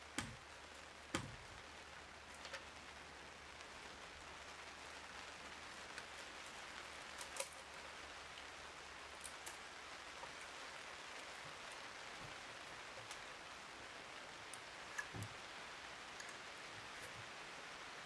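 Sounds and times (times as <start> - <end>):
small clicks: 2.3 - 2.8, 7.0 - 7.8, 14.5 - 15.4.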